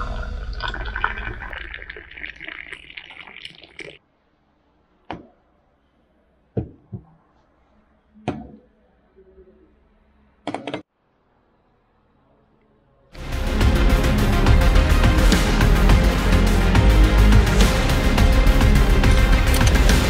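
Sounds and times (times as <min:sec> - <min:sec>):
tea pouring into glass: 0:00.0 - 0:04.0.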